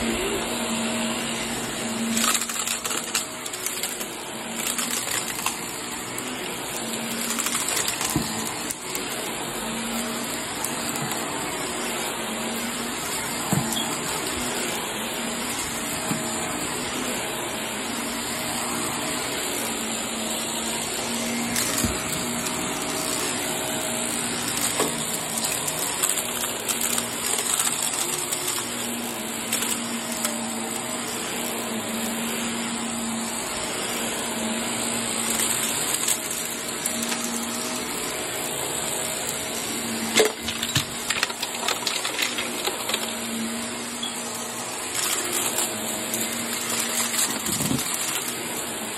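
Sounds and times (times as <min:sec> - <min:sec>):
vacuum cleaner on carpet: 0:00.0 - 0:48.9
clicks and rattles: 0:40.2 - 0:43.2.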